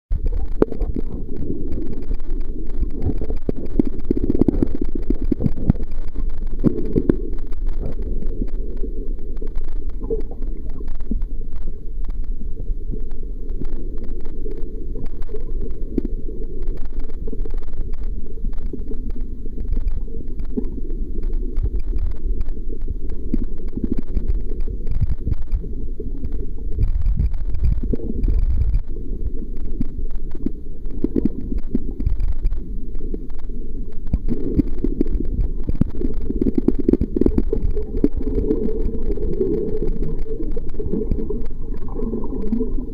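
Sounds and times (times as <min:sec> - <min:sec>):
muffled underwater rumble: 0:00.1 - 0:42.9.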